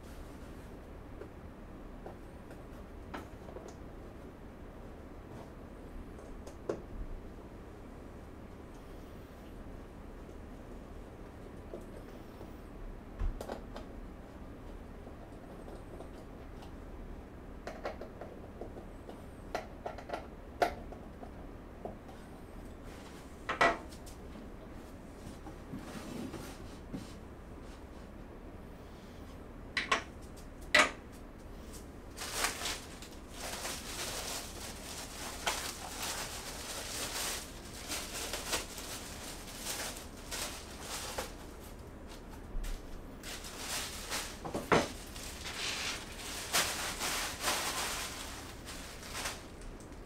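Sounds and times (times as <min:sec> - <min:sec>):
scraping rustling and light clatter: 0:21.2 - 0:28.2, 0:30.0 - 0:50.0.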